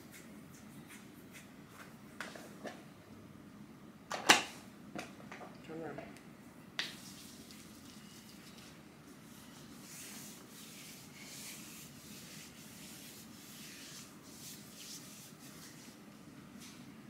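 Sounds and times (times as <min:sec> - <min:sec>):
hands rubbing over fabric and skin: 0:09.2 - 0:16.8.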